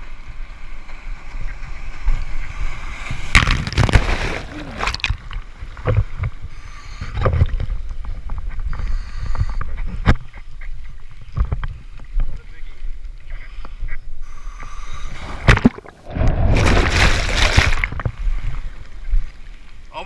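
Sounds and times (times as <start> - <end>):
splashing and gurgling foam: 1.6 - 6.1, 15.1 - 18.9.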